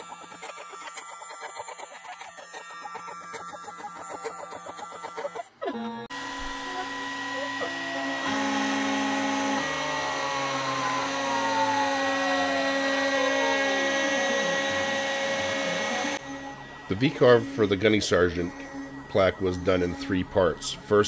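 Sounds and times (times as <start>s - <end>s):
cnc router spindle whine: 0.0s - 21.0s
tone sliding downward: 5.8s - 21.0s
fast rhythmic chatter: 9.4s - 21.0s.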